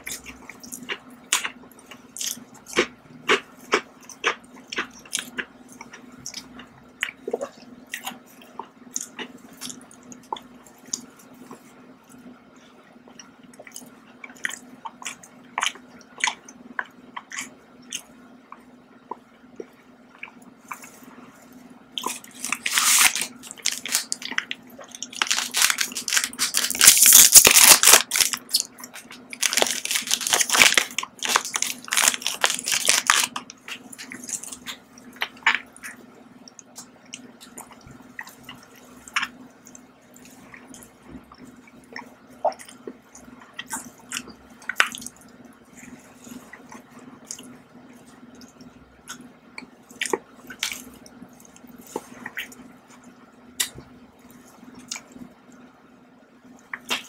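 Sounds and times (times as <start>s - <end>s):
crunching candy and biscuits: 0.0s - 12.3s, 13.0s - 55.4s, 56.6s - 57.0s
plastic wrapper crinkling: 22.1s - 33.4s.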